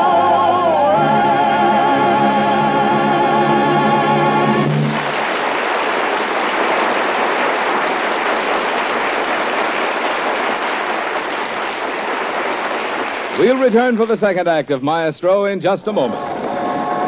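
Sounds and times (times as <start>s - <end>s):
audience applauding: 4.4s - 14.4s.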